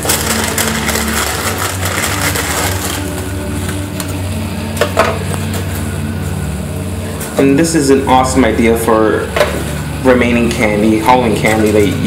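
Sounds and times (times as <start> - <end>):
packet rustling: 0.0 - 3.8
steady low hum: 0.4 - 12.0.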